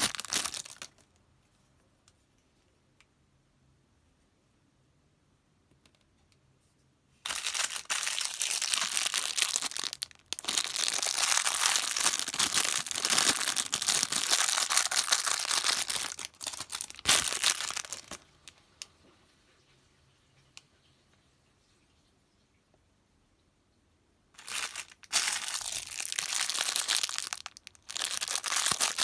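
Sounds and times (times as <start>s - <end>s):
plastic bag crinkling: 0.0s - 1.1s, 7.2s - 18.6s, 24.4s - 29.0s.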